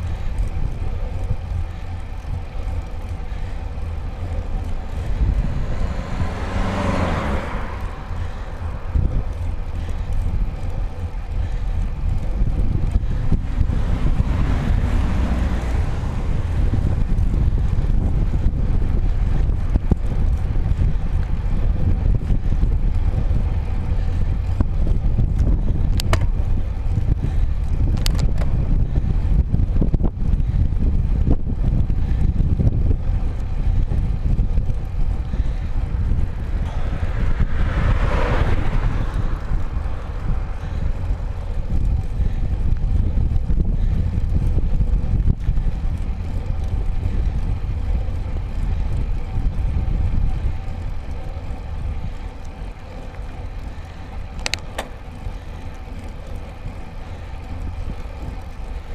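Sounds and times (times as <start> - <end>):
car passing: 0.0 - 24.7, 33.1 - 44.2, 45.5 - 58.9
wind and road vibration rumble: 0.0 - 58.9.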